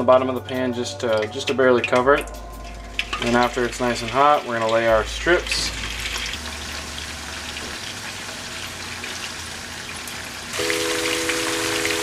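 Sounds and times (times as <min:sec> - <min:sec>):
fish sizzling in hot oil: 0:02.7 - 0:12.0.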